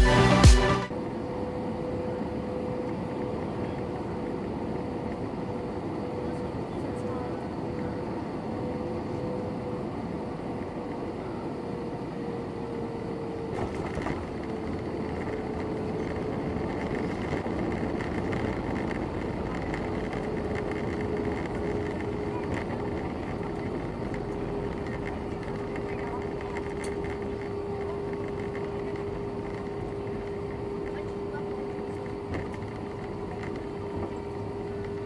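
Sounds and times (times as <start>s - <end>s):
engine and rolling noise: 0.0s - 35.0s
jet engine whine falling in pitch: 0.0s - 35.0s
aircraft landing thud: 13.3s - 35.0s.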